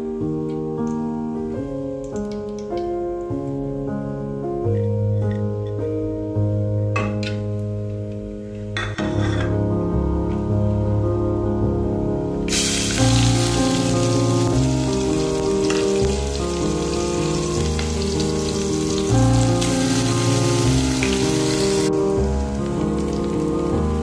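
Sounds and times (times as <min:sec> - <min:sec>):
background music with held chords: 0:00.0 - 0:24.0
onions sizzling in hot oil: 0:12.5 - 0:24.0.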